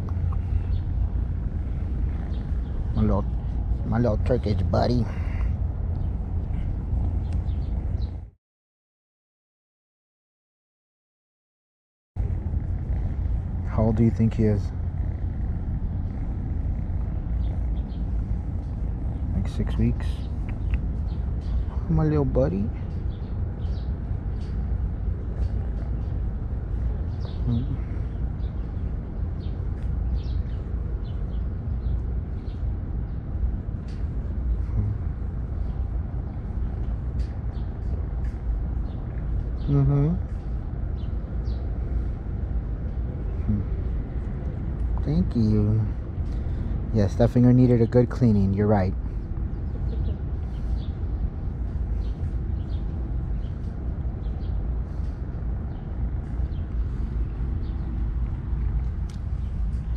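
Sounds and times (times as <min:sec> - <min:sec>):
traffic rumble: 0:00.0 - 0:08.4, 0:12.2 - 0:59.9
bird chirps: 0:12.9 - 0:24.6, 0:26.9 - 0:28.8.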